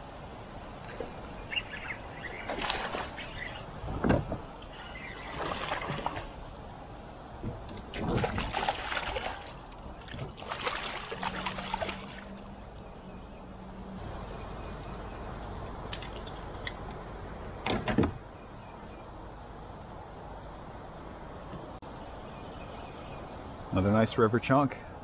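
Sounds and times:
fish splashing and thrashing: 0.9s - 3.8s, 4.4s - 6.5s, 7.5s - 12.6s.

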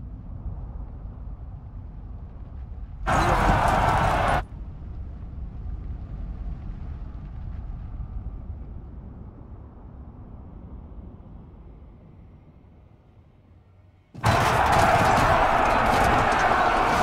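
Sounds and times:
crowd roaring battle cry: 3.1s - 4.4s, 14.2s - 17.0s.

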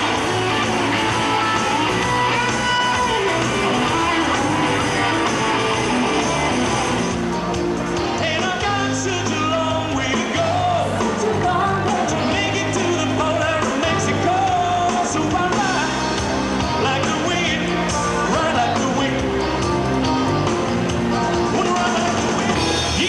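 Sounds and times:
bass line: 0.0s - 23.0s
drums: 0.0s - 23.0s
live rock band: 0.0s - 23.0s
man singing: 8.1s - 19.6s.

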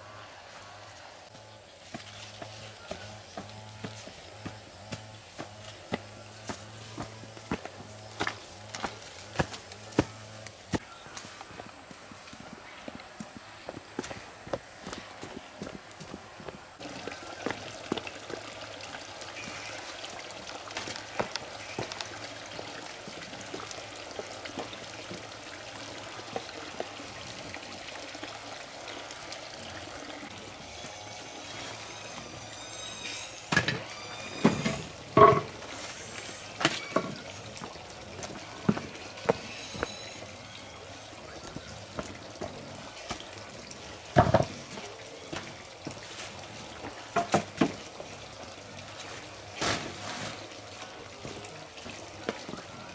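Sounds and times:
steady background noise: 0.0s - 52.9s.

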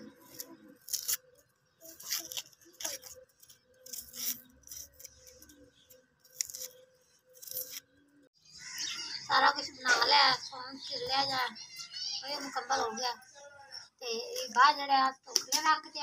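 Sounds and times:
knife peeling onion skin: 0.2s - 7.9s.

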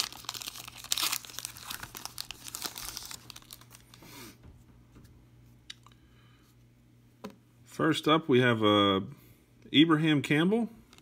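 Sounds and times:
foil wrapper crinkling and tearing: 0.0s - 4.0s.

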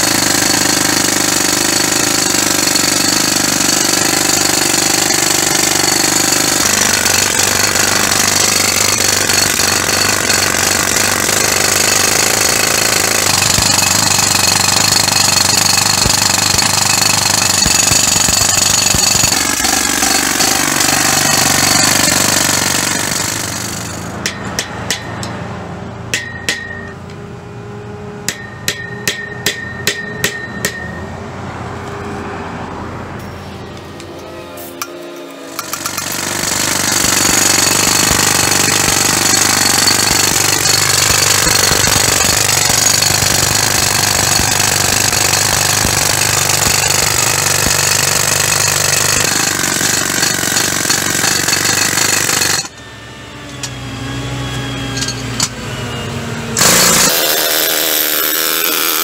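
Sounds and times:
jackhammer rattling on concrete: 0.0s - 25.3s, 35.5s - 52.8s, 54.9s - 55.6s, 56.6s - 59.0s.

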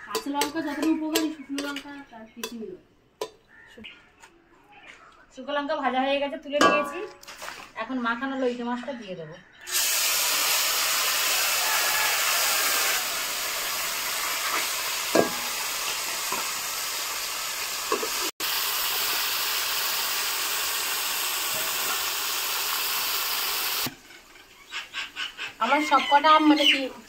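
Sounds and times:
fish sizzling in oil: 9.7s - 26.2s.

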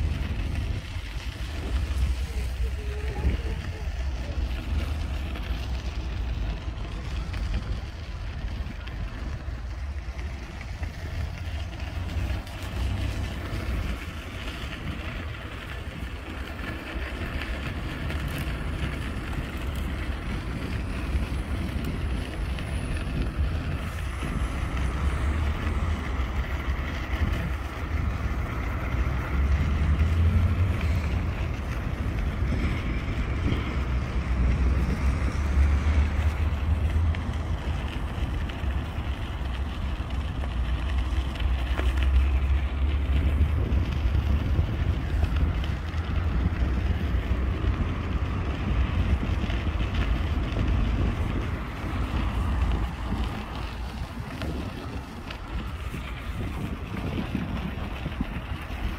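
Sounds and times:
distant city traffic hum: 0.0s - 58.9s
wind buffeting microphone: 0.0s - 58.9s.

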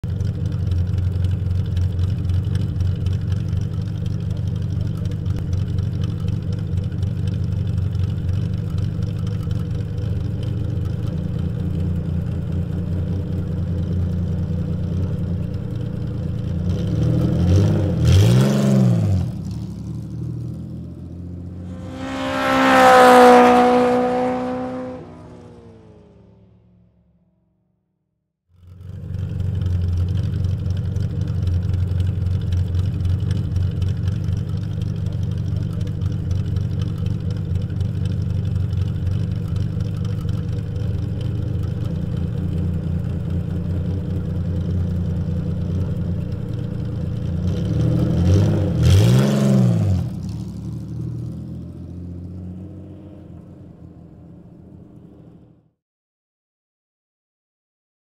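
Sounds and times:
race car engine revving: 15.1s - 26.7s, 41.2s - 55.7s.

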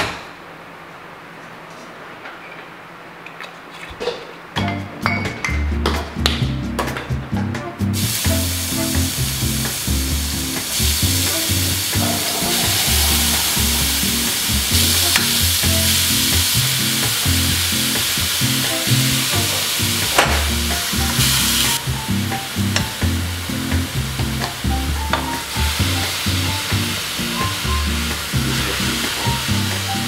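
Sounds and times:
background music with low beat: 4.6s - 30.0s
onion sizzling in a pot: 8.0s - 30.0s.

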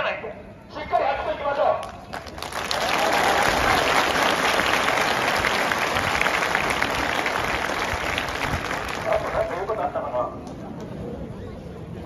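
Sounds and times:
large crowd applauding: 1.8s - 9.8s.

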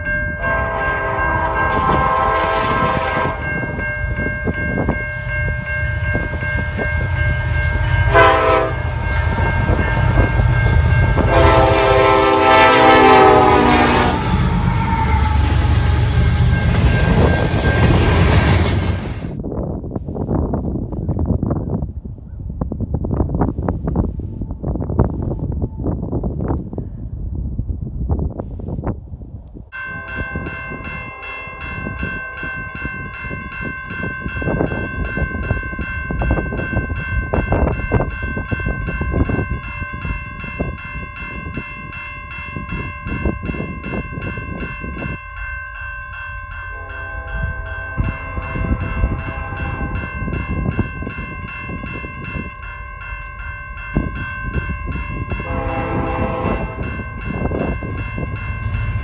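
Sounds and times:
crossing warning bell ringing: 0.0s - 19.4s, 29.7s - 59.0s
train horn blasts: 0.4s - 3.8s, 7.0s - 17.4s, 46.6s - 50.2s, 55.3s - 57.7s
locomotive rumble: 0.4s - 19.4s.

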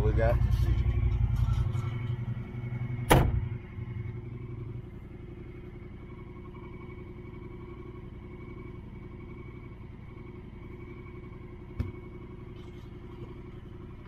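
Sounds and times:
off-road vehicle engine running: 0.0s - 14.0s.

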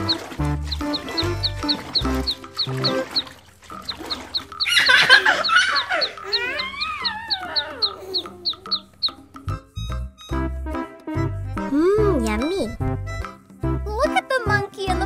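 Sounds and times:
farm animal squawking: 0.0s - 9.2s
quick ticking beat: 0.0s - 10.3s
light background music: 0.0s - 15.0s
wavering animal calls: 0.7s - 9.4s.

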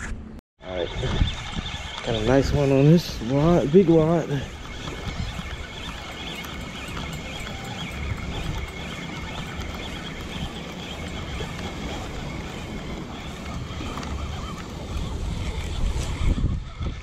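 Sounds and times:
wind buffeting microphone: 0.6s - 17.0s.

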